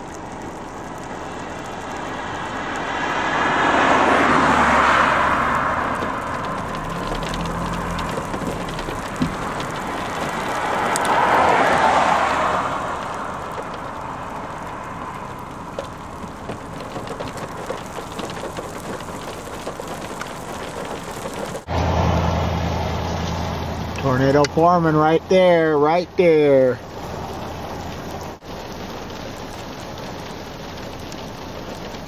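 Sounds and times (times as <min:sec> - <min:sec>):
wind and road traffic rushing: 0:00.0 - 0:32.0
faint ticks: 0:05.9 - 0:20.9.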